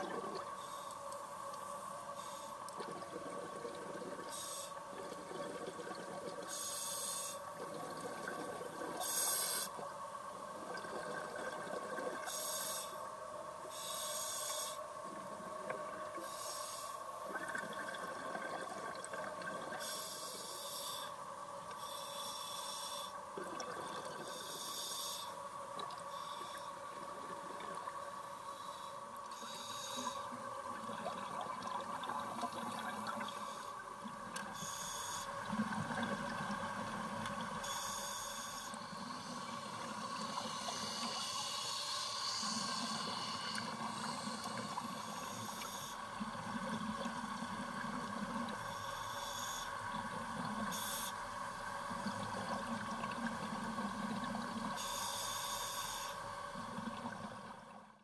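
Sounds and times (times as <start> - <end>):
exhaled bubbles underwater: 10.5 - 12.4, 17.3 - 19.9, 23.4 - 24.3, 30.4 - 34.7, 35.4 - 37.6.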